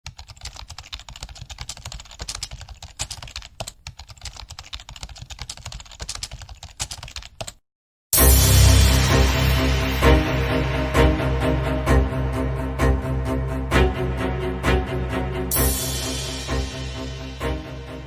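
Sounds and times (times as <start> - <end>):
keyboard typing clicks: 0.1 - 7.6
loud background music: 8.2 - 18.0.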